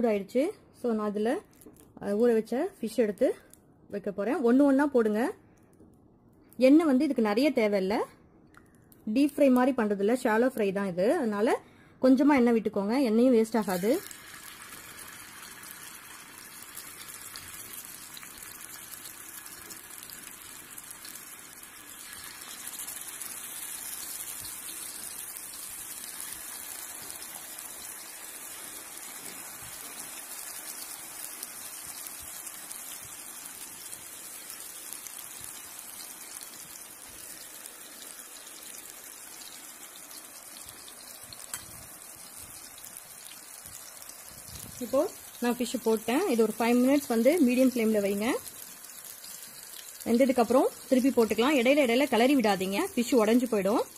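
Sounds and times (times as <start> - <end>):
fish sizzling in hot oil: 13.4 - 53.9.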